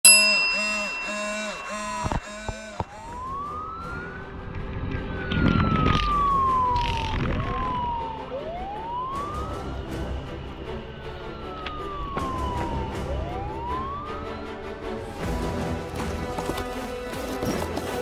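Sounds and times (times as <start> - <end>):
fire truck siren wailing: 1.7 - 15.4.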